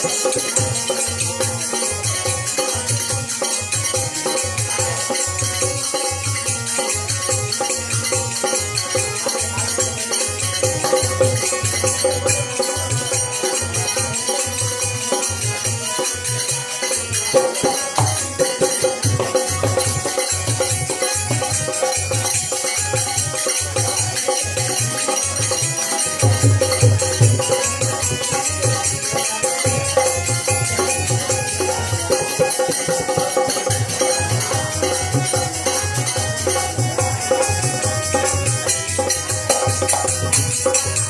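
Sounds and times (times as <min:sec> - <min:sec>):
harmonium holding chords: 0:00.0 - 0:41.0
hand drum beating: 0:17.3 - 0:41.0.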